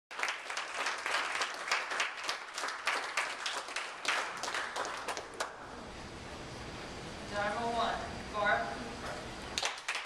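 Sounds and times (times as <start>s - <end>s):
people clapping in rhythm: 0.1s - 5.6s, 9.6s - 10.0s.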